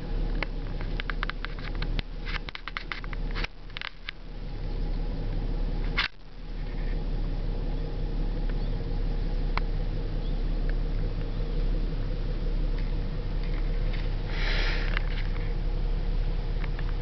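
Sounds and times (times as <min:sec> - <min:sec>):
low rumble: 0:00.0 - 0:17.0
rustling hiss: 0:00.0 - 0:17.0
light ticks: 0:00.2 - 0:04.2, 0:08.4 - 0:08.6, 0:09.5 - 0:09.8, 0:10.6 - 0:11.4, 0:16.5 - 0:17.0.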